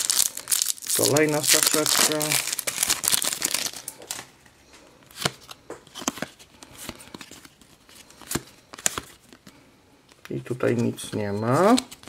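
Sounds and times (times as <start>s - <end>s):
foil pack crinkling: 0.0s - 4.3s.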